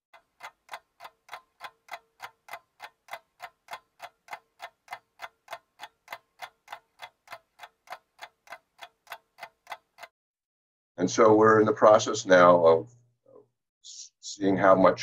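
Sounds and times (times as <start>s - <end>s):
clock ticking: 0.1s - 10.2s.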